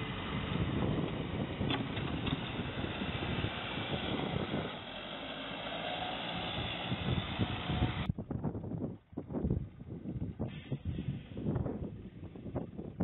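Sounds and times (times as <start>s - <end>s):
diesel engine running: 0.0s - 8.1s
wind on microphone: 0.3s - 4.8s, 6.3s - 13.0s.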